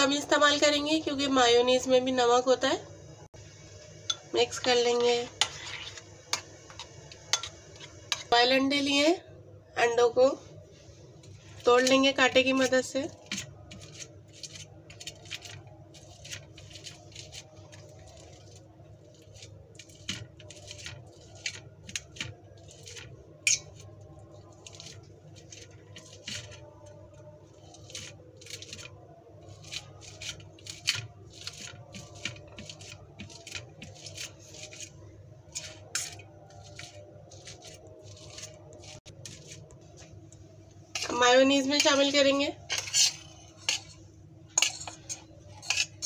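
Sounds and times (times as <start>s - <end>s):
metal fork scraping metal plate: 19.2s - 23.8s, 35.5s - 39.6s, 42.7s - 46.0s.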